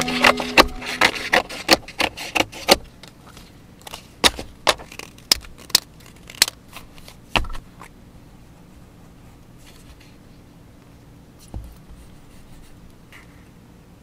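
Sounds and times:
scissors cutting paper: 0.0 - 2.8.

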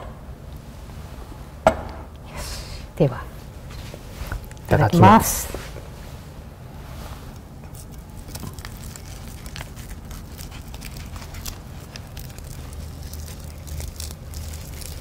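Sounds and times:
low steady hum: 0.0 - 15.0
dry seaweed crackling: 7.7 - 15.0.

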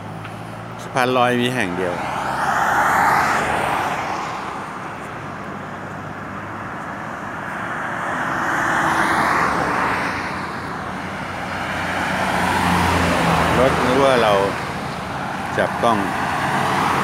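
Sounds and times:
steady road noise: 0.0 - 17.0
vehicle passing: 0.0 - 17.0.

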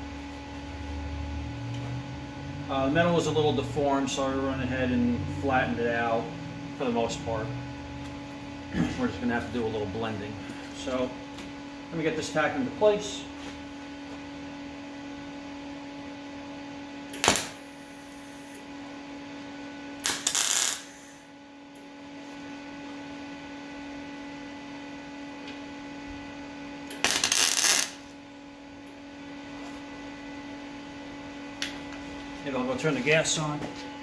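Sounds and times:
steady electrical hum: 0.0 - 34.0
welding bursts: 17.1 - 18.5, 20.0 - 21.2, 26.9 - 28.0.

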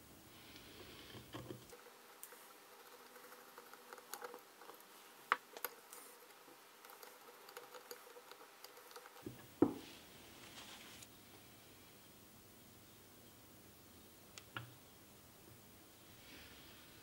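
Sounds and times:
dull knock: 9.3 - 9.8.

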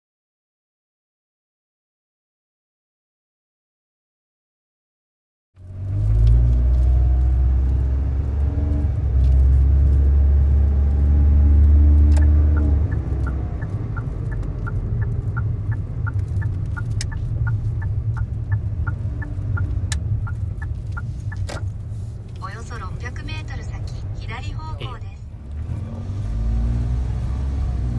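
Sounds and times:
car engine and road rumble: 5.6 - 27.9
turn signal ticking: 5.6 - 27.9.

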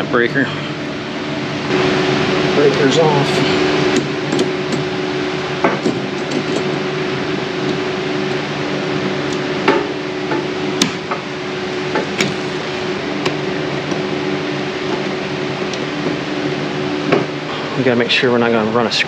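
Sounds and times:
steady machinery hum: 0.0 - 19.0.

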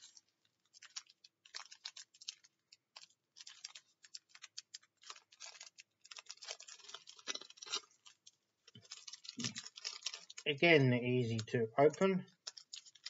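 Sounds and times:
foil pack crinkling: 0.0 - 13.0.

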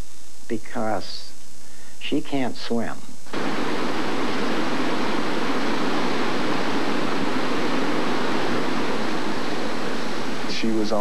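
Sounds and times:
floodwater rushing: 3.4 - 11.0.

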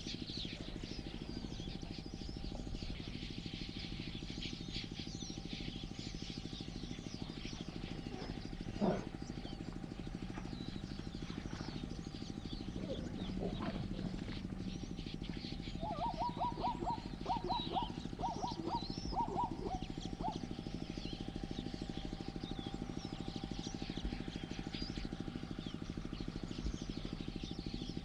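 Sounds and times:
small birds chirping: 0.0 - 28.0
steady low hum: 0.0 - 28.0
animal call: 7.6 - 9.6, 12.6 - 15.0, 15.6 - 20.6.

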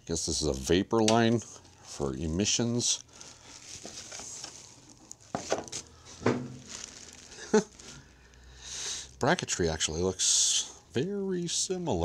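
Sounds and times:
plastic wrap crinkling: 1.2 - 10.2.

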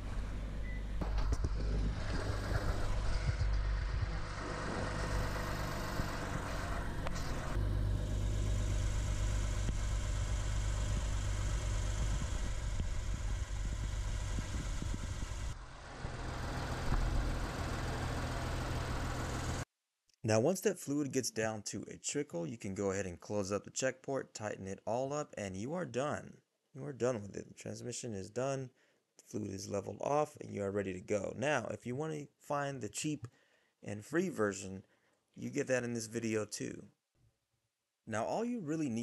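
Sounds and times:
car engine idling: 0.0 - 19.6.

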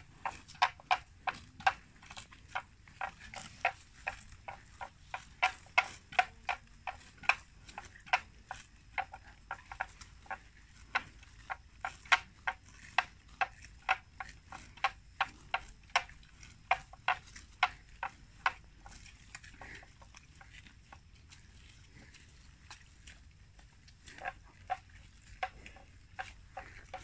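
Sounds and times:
buffalo tearing grass: 0.0 - 8.7, 24.0 - 27.0.

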